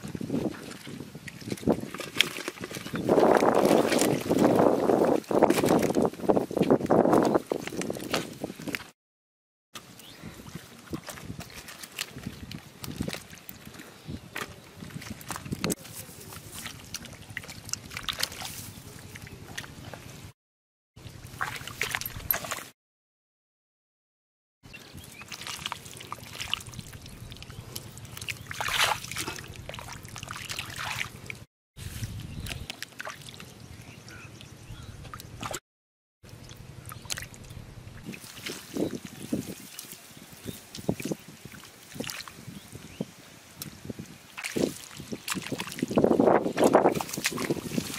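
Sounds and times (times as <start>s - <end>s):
hands splashing in muddy water: 14.4s - 19.9s, 21.3s - 22.7s, 25.0s - 33.5s, 38.1s - 42.5s, 43.8s - 47.9s
wet clicks: 36.3s - 37.6s.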